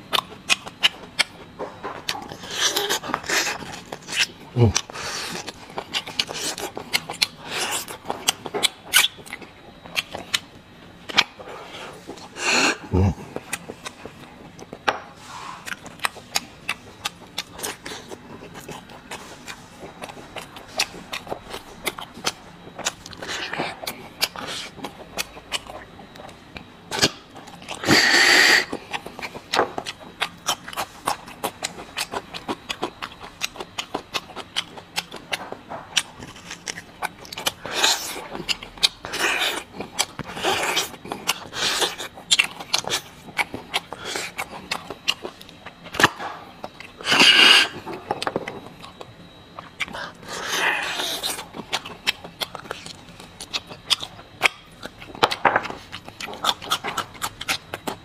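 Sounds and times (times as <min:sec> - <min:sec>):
chewing mouth clicks and lip smacks: 0:00.1 - 0:11.5, 0:15.6 - 0:58.0.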